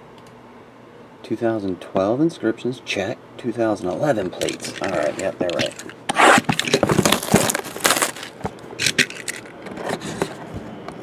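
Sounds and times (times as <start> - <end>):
shrink wrap crinkling: 3.9 - 9.5.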